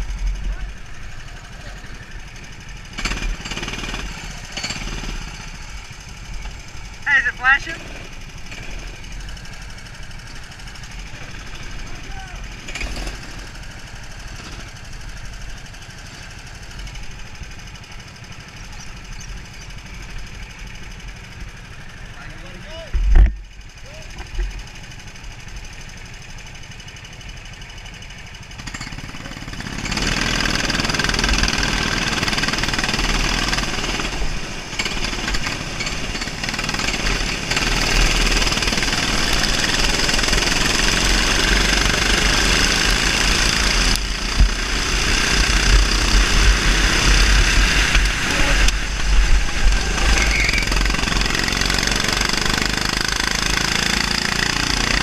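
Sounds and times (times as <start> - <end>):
kart engines racing: 29.2 - 55.0.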